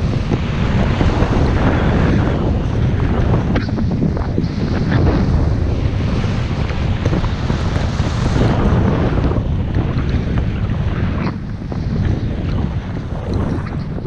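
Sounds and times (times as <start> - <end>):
wind buffeting microphone: 0.0 - 14.0
skis hissing through snow: 4.4 - 9.2.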